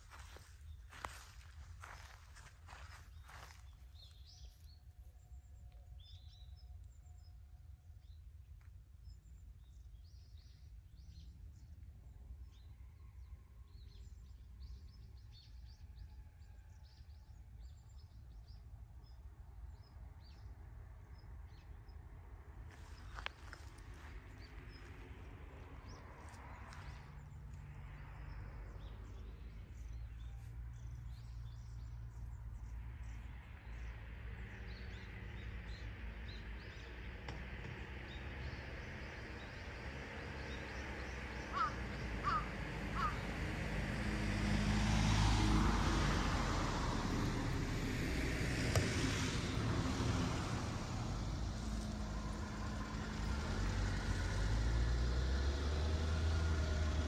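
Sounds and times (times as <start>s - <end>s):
vehicle engine rumble: 0.0s - 5.4s, 18.4s - 57.0s.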